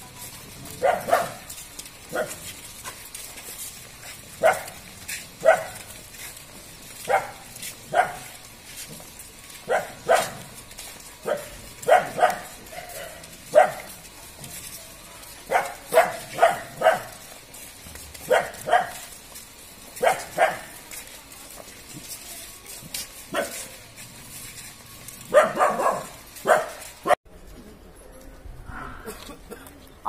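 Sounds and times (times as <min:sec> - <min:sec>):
dog barking: 0:00.8 - 0:01.5, 0:02.1 - 0:02.4, 0:04.4 - 0:04.8, 0:05.4 - 0:05.9, 0:07.0 - 0:08.4, 0:09.7 - 0:10.5, 0:11.2 - 0:14.0, 0:15.5 - 0:17.2, 0:18.2 - 0:19.1, 0:20.0 - 0:20.8, 0:23.3 - 0:23.7, 0:25.3 - 0:27.2.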